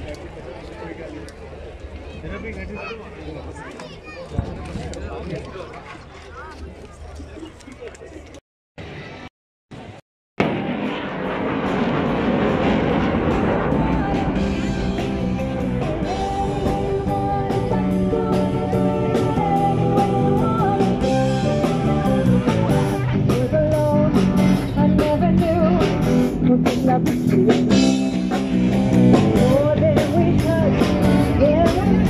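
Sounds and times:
live rock band playing: 13.0s - 32.0s
woman singing lead vocal: 13.7s - 15.0s, 15.8s - 22.3s, 23.3s - 27.7s, 29.3s - 32.0s.

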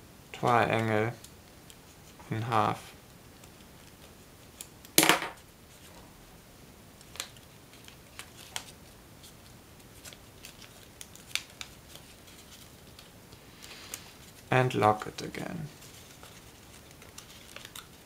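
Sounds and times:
paper rustling and crinkling: 7.0s - 18.0s.

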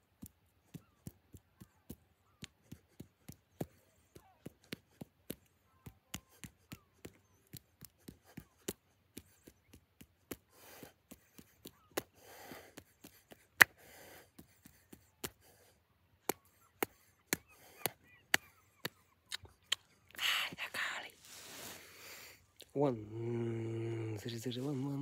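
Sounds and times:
hand claps and snaps: 0.2s - 15.5s, 16.2s - 20.0s.

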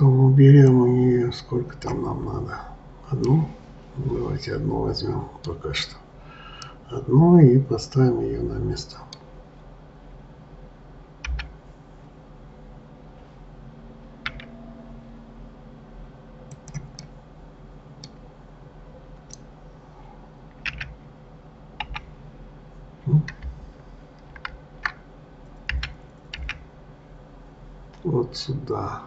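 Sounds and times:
keyboard and mouse clicks: 11.2s - 11.6s, 14.2s - 14.6s, 16.5s - 17.1s, 20.5s - 21.0s, 21.8s - 22.1s, 23.2s - 23.6s, 24.2s - 25.0s, 25.6s - 26.7s.

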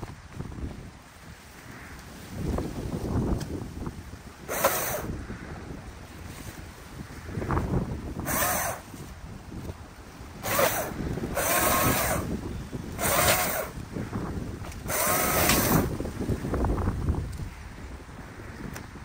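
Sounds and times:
chainsaw revving: 4.5s - 5.1s, 8.2s - 9.0s, 10.4s - 13.8s, 14.7s - 16.0s.

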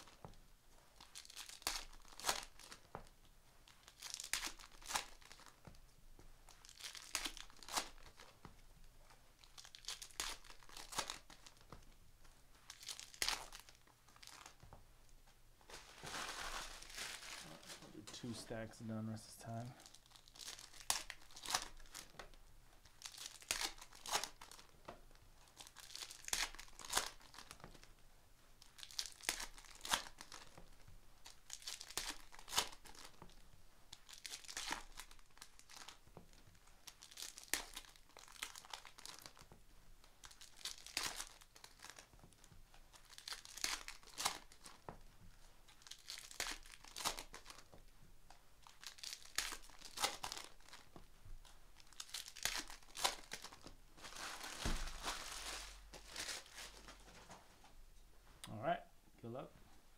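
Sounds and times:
foil wrappers tearing and crinkling: 0.0s - 0.3s, 1.0s - 2.9s, 3.6s - 5.6s, 6.5s - 8.4s, 9.4s - 11.8s, 12.6s - 14.6s, 15.7s - 18.5s, 19.6s - 24.7s, 25.5s - 27.8s, 28.6s - 39.5s, 40.1s - 42.2s, 42.9s - 44.9s, 45.7s - 47.7s, 48.6s - 51.0s, 51.8s - 57.0s.

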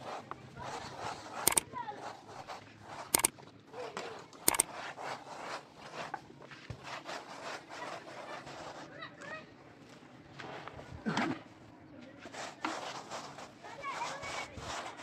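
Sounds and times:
trowel scraping over cement: 0.0s - 9.5s, 12.2s - 15.0s
sharp clicks: 1.4s - 1.7s, 3.1s - 3.3s, 4.4s - 4.7s.

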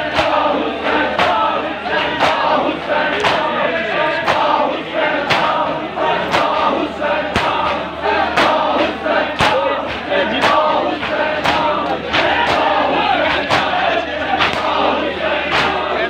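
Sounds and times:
crowd of men chanting: 0.0s - 16.0s
hands slapping chests: 3.2s - 3.5s.

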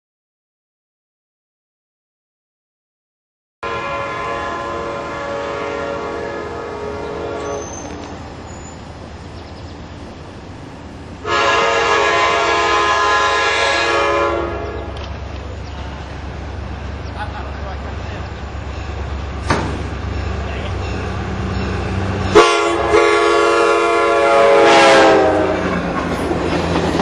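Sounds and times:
train air horn blasts: 3.6s - 7.9s, 11.2s - 15.0s, 22.3s - 25.8s
rumble of passing train: 3.6s - 27.0s.

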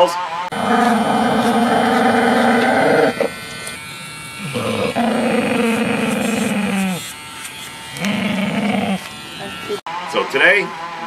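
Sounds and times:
dog growling: 0.5s - 7.1s, 7.9s - 9.1s.

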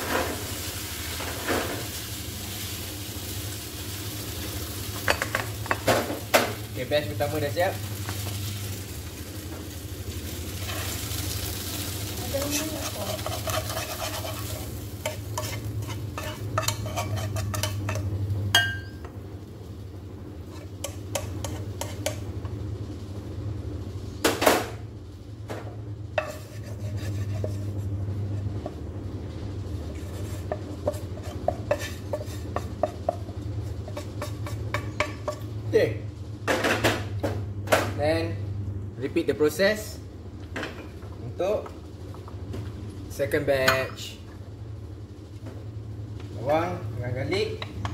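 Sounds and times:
oil sizzling: 0.0s - 22.6s, 25.9s - 35.7s
metal tongs scraping a frying pan: 10.6s - 11.0s, 12.4s - 18.9s.

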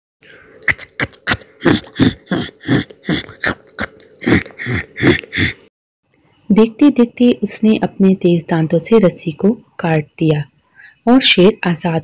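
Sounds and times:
faint steady hum: 0.2s - 12.0s
cartoon mouse gnawing: 0.5s - 5.5s.

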